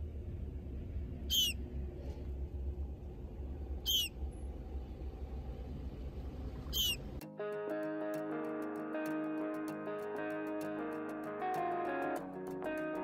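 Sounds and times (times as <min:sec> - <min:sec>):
low steady rumble: 0:00.0 - 0:07.2
high thin bird calls: 0:01.3 - 0:01.6, 0:03.8 - 0:04.2, 0:06.6 - 0:07.2
guitar music: 0:07.1 - 0:13.0.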